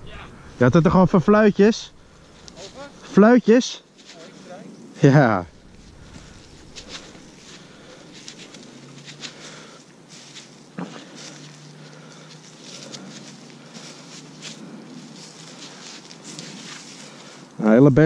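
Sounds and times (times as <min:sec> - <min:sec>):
faint low hum: 0:00.0 - 0:03.3, 0:05.1 - 0:12.3
footsteps on forest floor: 0:01.3 - 0:03.2, 0:05.4 - 0:17.5.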